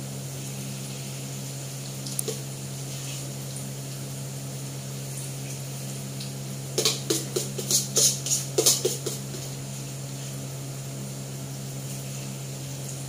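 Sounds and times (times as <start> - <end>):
frying hiss: 0.0 - 13.0.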